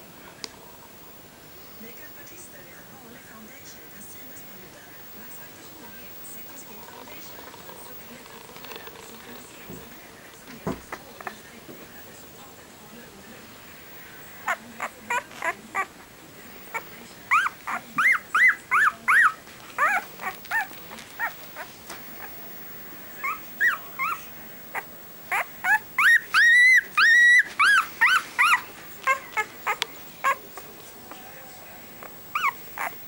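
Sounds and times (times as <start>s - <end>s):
puppy whining and squeaking: 14.4s - 16.0s, 16.7s - 22.4s, 23.2s - 31.4s, 32.0s - 33.0s.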